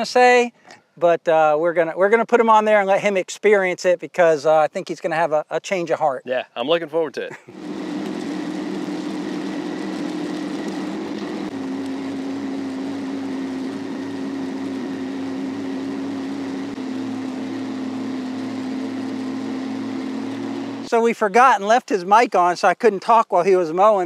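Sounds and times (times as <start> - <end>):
mower deck cutting grass: 7.5 - 20.9
mower diesel engine droning: 7.5 - 20.9.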